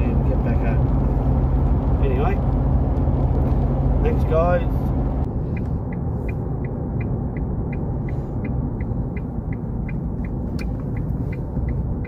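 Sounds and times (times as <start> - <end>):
car engine and tyre rumble: 0.0 - 12.0
faint regular tick: 5.5 - 11.8.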